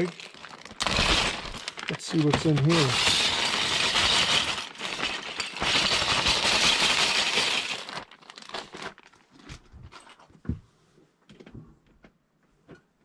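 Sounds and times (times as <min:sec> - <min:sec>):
plastic bricks clattering on table: 0:00.0 - 0:10.2.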